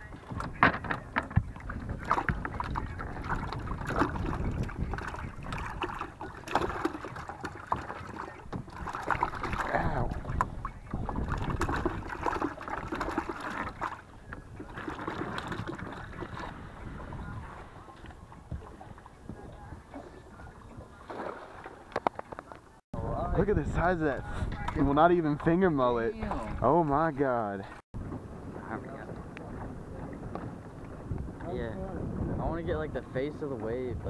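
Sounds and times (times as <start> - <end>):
water splashing: 0.0 - 22.8, 24.6 - 27.8.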